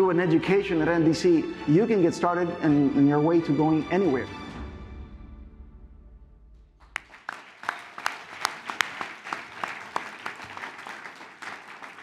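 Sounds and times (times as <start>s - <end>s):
audience applauding: 6.8s - 12.0s.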